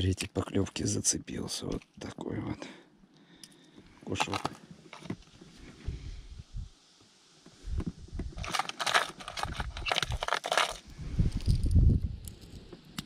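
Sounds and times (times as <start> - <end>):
plastic lures clattering in box: 4.2 - 5.2, 8.3 - 10.8
handling thumps and rustle: 4.2 - 5.6, 7.7 - 10.8.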